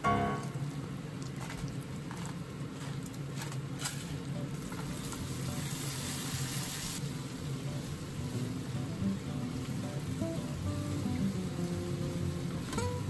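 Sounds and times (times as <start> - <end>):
meat sizzling in a frying pan: 4.7 - 13.0.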